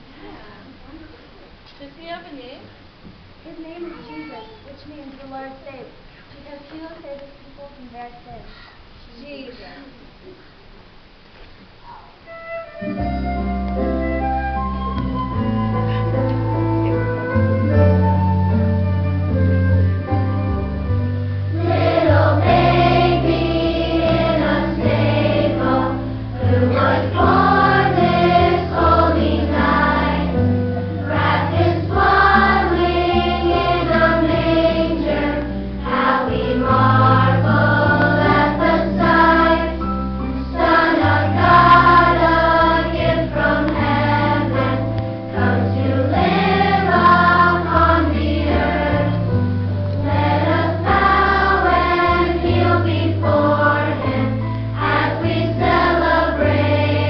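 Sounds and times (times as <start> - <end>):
instrumental accompaniment with bass: 12.3 - 57.0
choir singing: 21.5 - 39.9, 40.5 - 49.4, 50.0 - 57.0.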